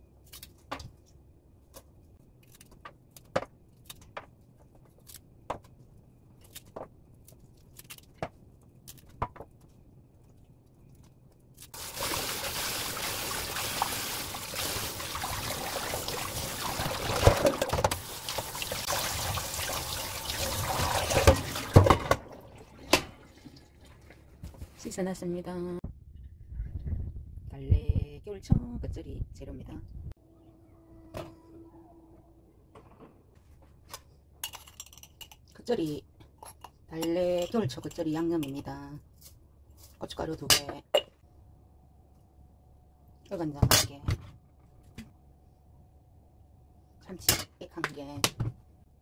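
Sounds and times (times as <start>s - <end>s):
clicks and snaps of trimming greens: 0.2s - 0.7s, 1.7s - 4.2s, 4.9s - 5.3s, 6.4s - 8.2s
tap water running into sink: 11.8s - 24.2s.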